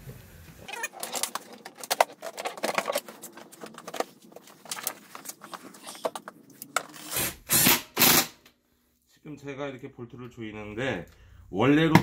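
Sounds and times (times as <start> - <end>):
plastic parts clicking and knocking: 0.7 - 8.2.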